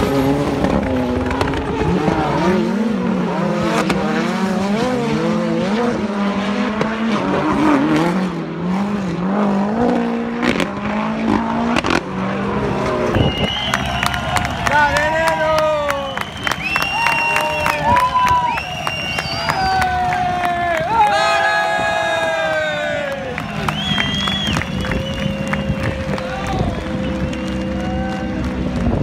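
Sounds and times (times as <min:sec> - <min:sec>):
racing car engines revving: 0:00.0 - 0:29.0.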